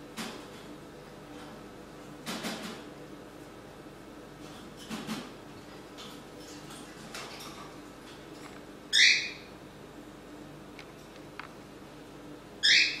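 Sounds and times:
cockatiel screeching calls: 9.0s - 9.4s, 12.6s - 13.0s.

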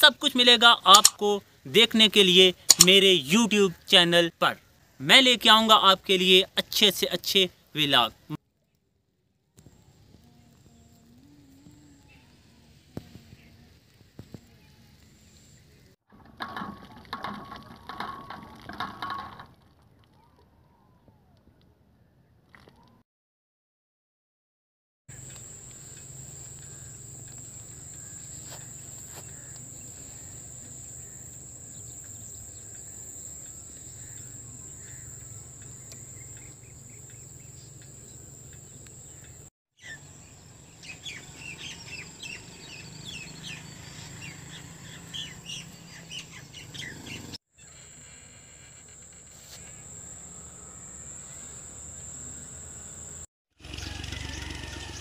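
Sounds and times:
birds chirping: 25.1s - 47.8s
high-pitched insect drone: 47.6s - 53.3s.

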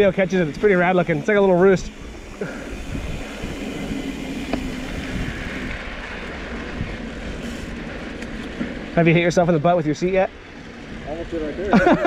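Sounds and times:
wind on microphone: 0.0s - 8.8s.

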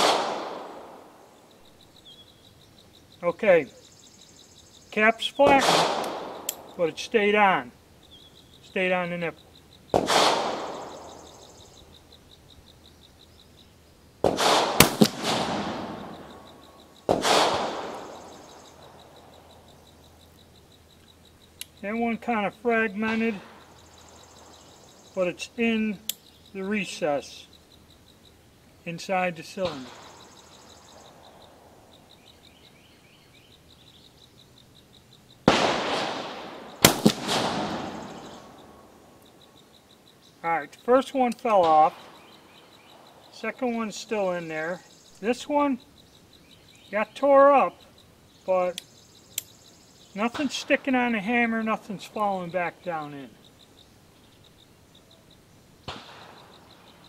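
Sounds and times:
gunshot echo: 0.0s - 1.1s, 5.4s - 6.7s, 9.9s - 11.2s, 14.2s - 16.4s, 17.1s - 18.3s, 35.5s - 38.8s, 55.8s - 56.5s
revolver shots cracking: 0.0s - 1.1s, 5.4s - 6.8s, 9.9s - 11.1s, 14.2s - 16.4s, 17.1s - 18.3s, 35.4s - 38.9s, 55.8s - 56.6s.

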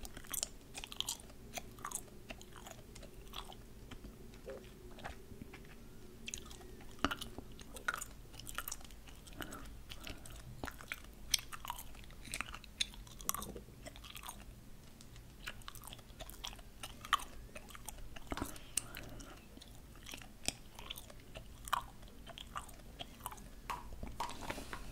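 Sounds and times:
gum chewing clicks: 0.0s - 24.9s.

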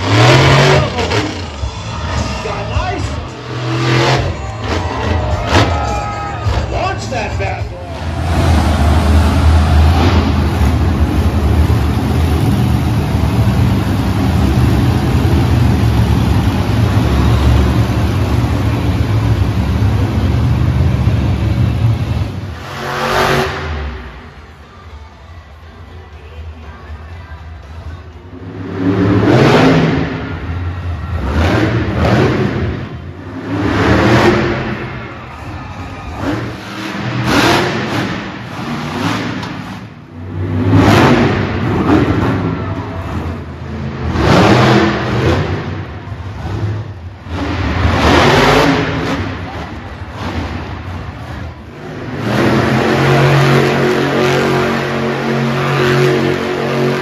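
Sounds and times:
monster truck engines revving: 0.0s - 57.0s.

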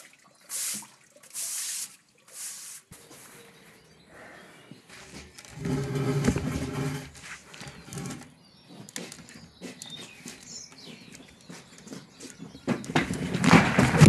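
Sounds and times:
table scraping on stone paving: 4.9s - 9.3s.

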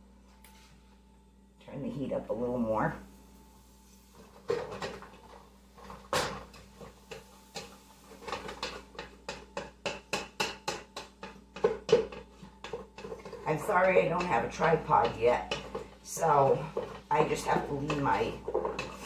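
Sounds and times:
pot and spoon knocks: 8.3s - 13.4s.

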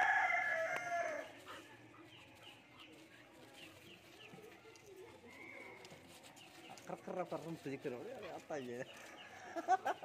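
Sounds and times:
rooster crowing: 0.0s - 1.3s.

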